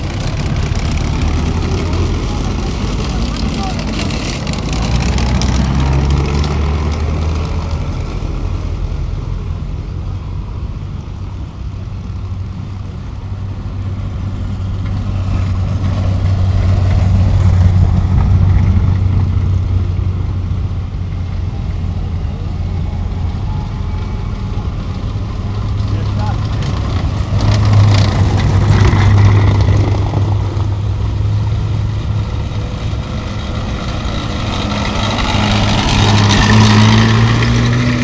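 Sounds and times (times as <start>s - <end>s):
vehicle engines driving past: 0.0s - 38.0s.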